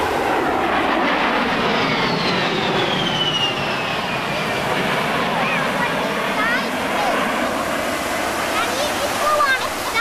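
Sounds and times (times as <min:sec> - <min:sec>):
jet aircraft flying past: 0:00.0 - 0:10.0
high jet whistle: 0:01.8 - 0:04.4.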